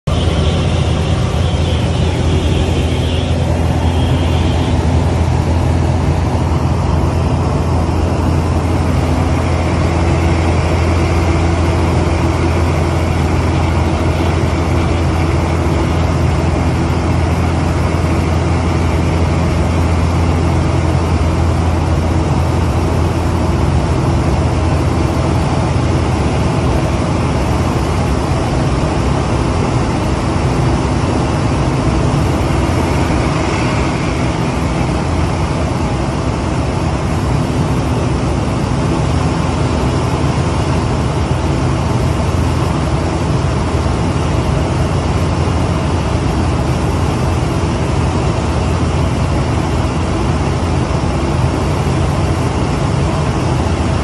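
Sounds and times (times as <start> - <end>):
plane engine and propeller droning: 0.0 - 54.0.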